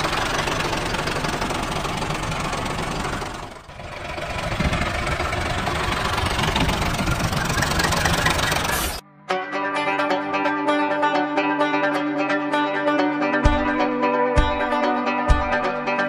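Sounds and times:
tractor engine idling: 0.0s - 9.0s.

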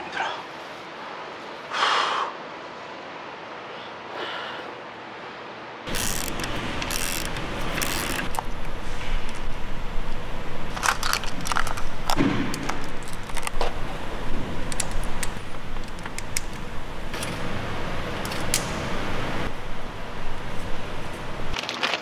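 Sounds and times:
workshop background noise: 5.9s - 21.8s
small steel parts clicking: 10.7s - 13.6s.

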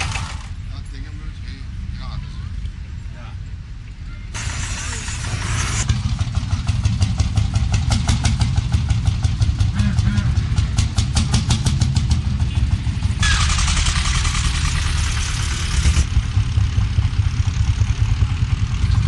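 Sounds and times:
tractor engine running: 0.0s - 1.1s, 4.4s - 19.0s
bright hiss: 4.4s - 5.9s.

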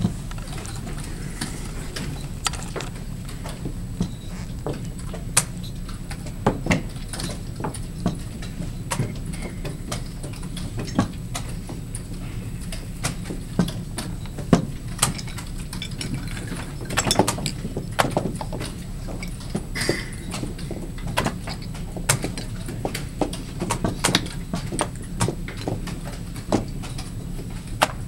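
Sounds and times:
low background hum: 0.0s - 28.0s.

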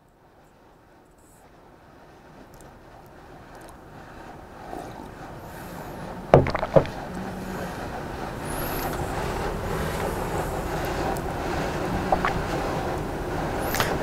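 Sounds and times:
steady rushing background noise: 0.0s - 14.0s
ceramic mug knocking on surface: 6.4s - 7.0s.

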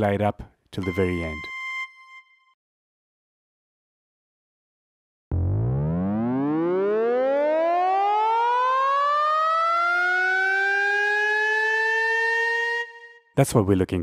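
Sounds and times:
lower synth tone: 0.8s - 2.6s, 5.3s - 11.6s
synth lead rising: 5.3s - 13.1s.

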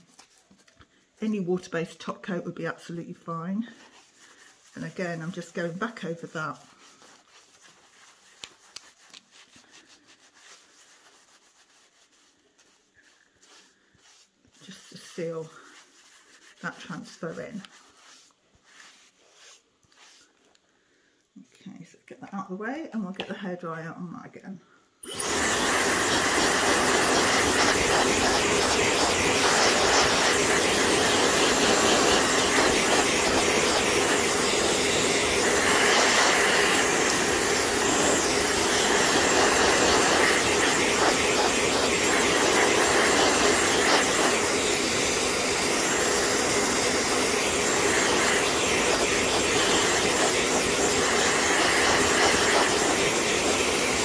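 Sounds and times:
hair dryer blowing: 25.0s - 54.0s.

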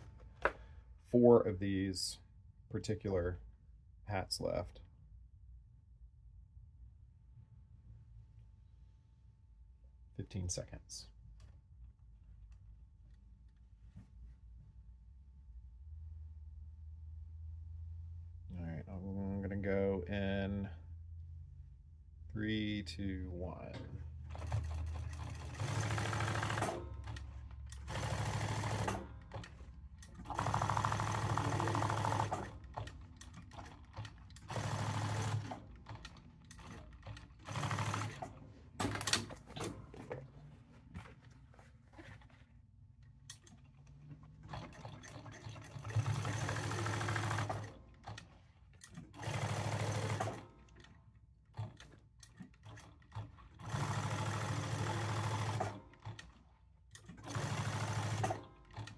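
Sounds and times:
sewing machine stitching leather: 23.8s - 58.9s.

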